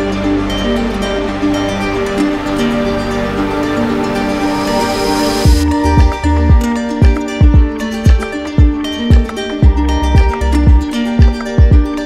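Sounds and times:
held melodic notes: 0.0s - 12.0s
plucked strings: 0.0s - 12.0s
deep kick drum: 5.5s - 12.0s.

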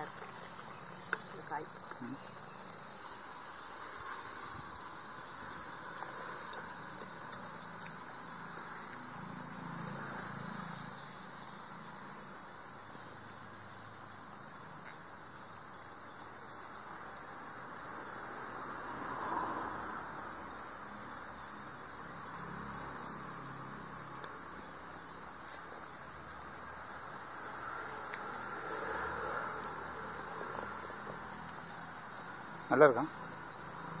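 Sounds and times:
bird chirping: 0.0s - 4.2s, 9.9s - 16.9s
high insect drone: 0.0s - 34.0s.

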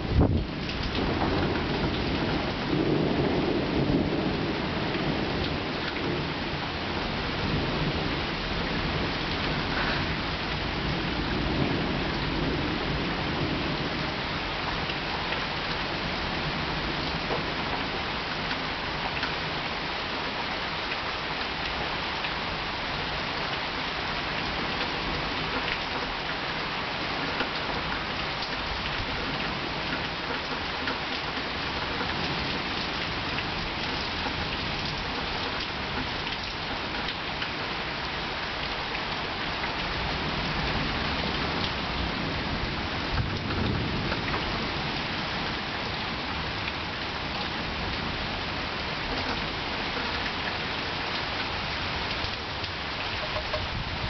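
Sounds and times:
low roll of thunder: 0.0s - 18.0s, 40.0s - 46.9s, 53.2s - 54.0s
rain pattering: 0.0s - 54.0s.

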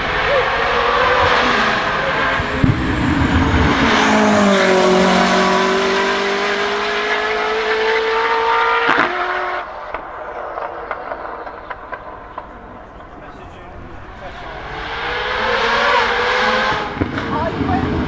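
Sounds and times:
car engine at full throttle: 0.0s - 18.0s
sharp crack: 9.8s - 13.2s.

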